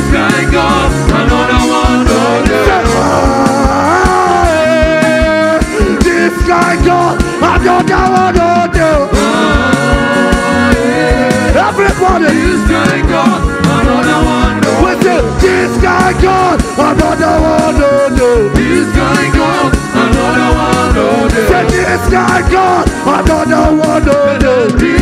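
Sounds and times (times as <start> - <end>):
upbeat band music: 0.0 - 25.0.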